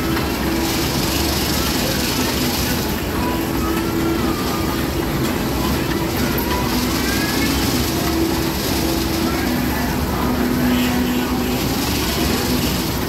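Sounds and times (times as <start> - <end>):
fairground ride machinery rumbling: 0.0 - 13.0
indistinct voices: 0.0 - 13.0.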